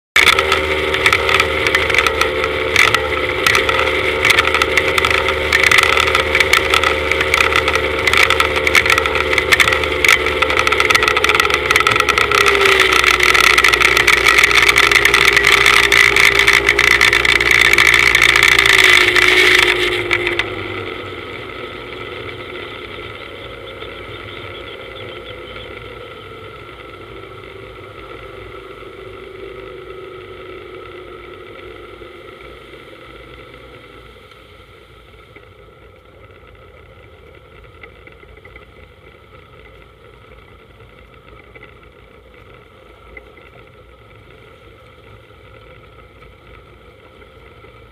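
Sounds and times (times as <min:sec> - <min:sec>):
speedboat engine running: 0:00.2 - 0:47.9.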